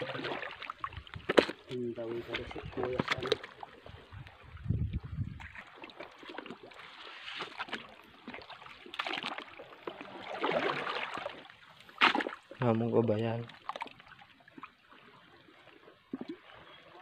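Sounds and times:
seawater splashing from wading: 5.4s - 12.7s.

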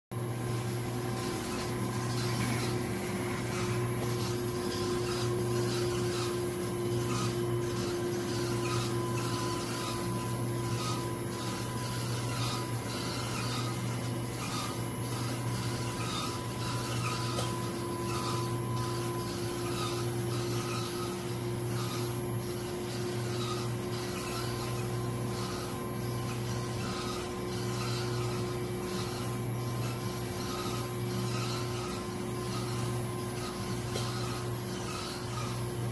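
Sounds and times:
motor and drive hum: 0.1s - 35.9s
uneven rubbing scraping: 0.8s - 35.7s.

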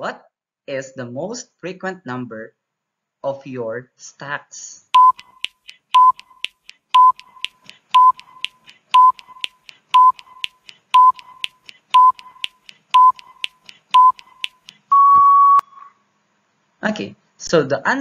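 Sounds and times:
short electronic beeps: 5.0s - 15.9s.

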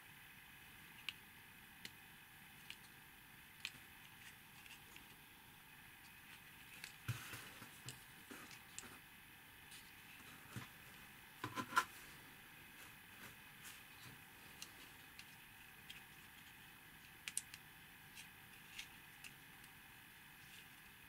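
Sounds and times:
plastic pieces clicking together: 17.2s - 17.6s.

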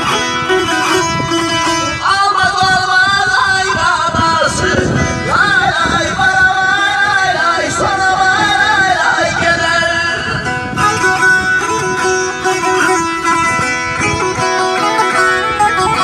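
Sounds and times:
high wavering melody: 0.0s - 4.1s, 9.6s - 16.0s
saz plucked and strummed: 0.0s - 16.0s.

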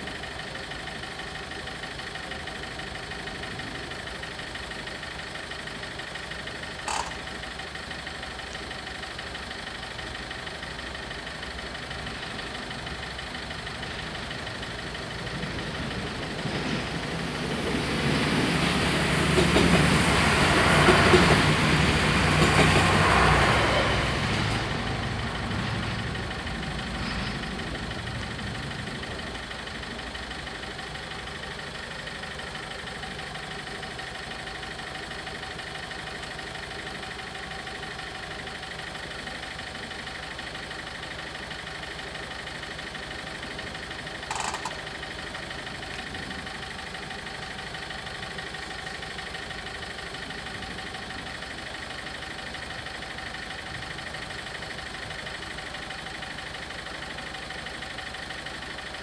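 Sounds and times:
car engine idling: 0.0s - 19.8s, 24.1s - 59.0s
crossing warning bell ringing: 6.8s - 7.3s, 44.3s - 44.9s.

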